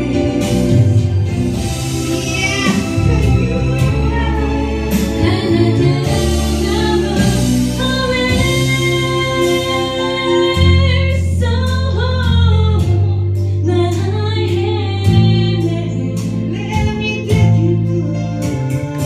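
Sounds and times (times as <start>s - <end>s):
gospel choir singing: 0.0s - 12.3s
steady drum beat: 0.0s - 13.1s
deep bass notes: 0.0s - 19.0s.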